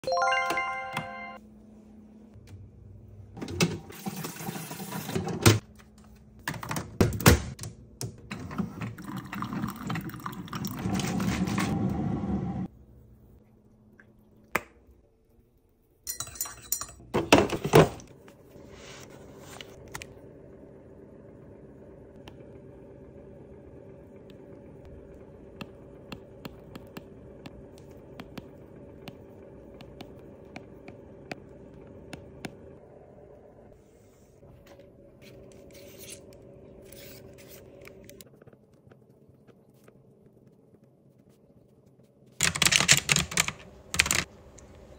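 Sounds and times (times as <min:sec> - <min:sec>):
low steady hum: 0:07.8 - 0:42.4.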